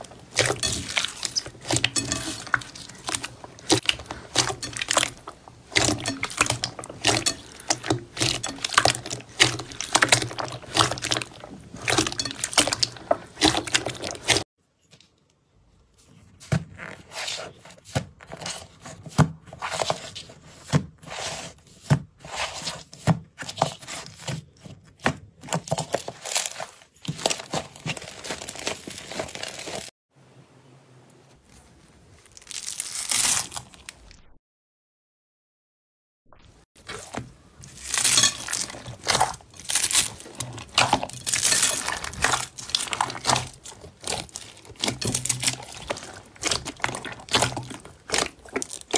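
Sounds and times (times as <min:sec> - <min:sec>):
slime crackling and popping: 0:00.0 - 0:14.4, 0:36.9 - 0:48.9
crunchy slime with foam beads: 0:00.0 - 0:14.5, 0:25.4 - 0:29.9, 0:32.0 - 0:34.2, 0:36.8 - 0:48.9.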